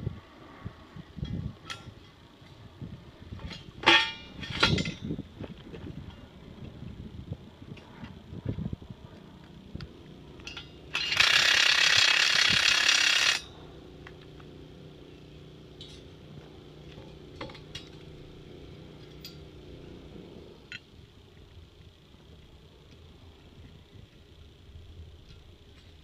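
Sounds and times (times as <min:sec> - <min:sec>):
low steady hum: 0:00.0 - 0:26.0
tool rattling loudly: 0:10.4 - 0:13.5.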